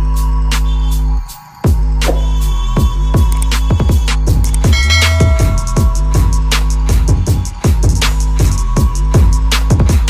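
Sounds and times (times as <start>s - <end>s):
electronic music: 1.9s - 7.1s
deep sustained bass: 4.7s - 7.4s.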